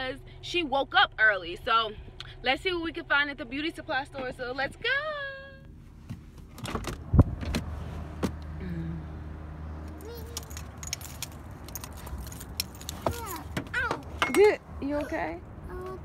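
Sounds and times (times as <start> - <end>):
sharp thump in car: 6.0 - 8.4.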